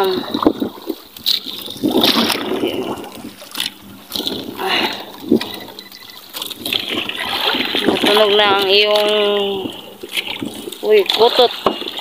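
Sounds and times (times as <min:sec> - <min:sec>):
water lapping against boat hull: 0:00.0 - 0:12.0.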